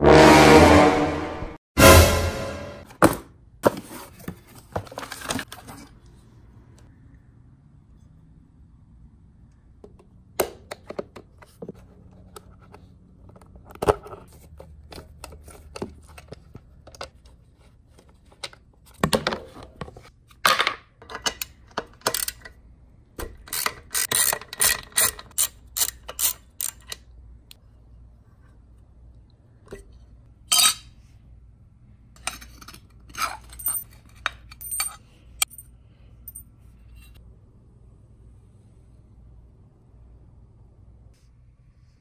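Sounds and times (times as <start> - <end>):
ratchet wrench clicking: 23.5 - 26.9.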